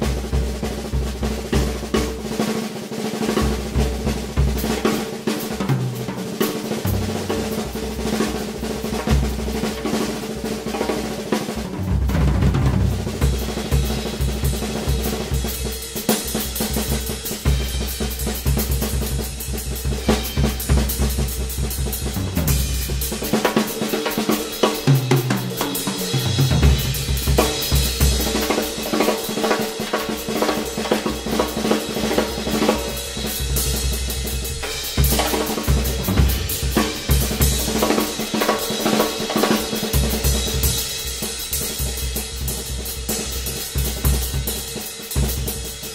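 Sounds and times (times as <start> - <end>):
bass drum: 11.5 - 15.7, 19.9 - 23.4, 24.8 - 29.0, 30.3 - 38.5.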